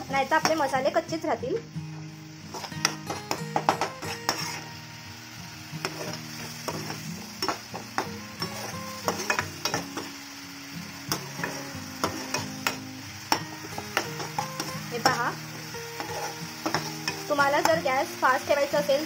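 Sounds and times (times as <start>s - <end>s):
masala sizzling: 0.0s - 19.0s
spatula scraping a pan: 2.5s - 4.7s, 13.4s - 17.8s.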